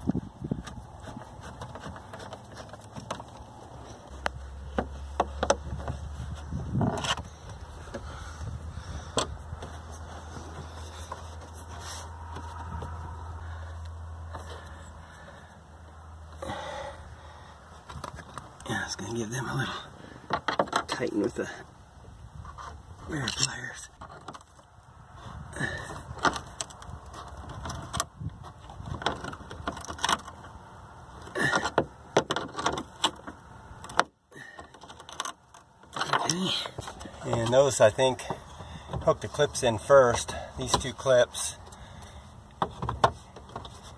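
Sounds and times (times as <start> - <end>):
handling noise: 0.0 - 13.5.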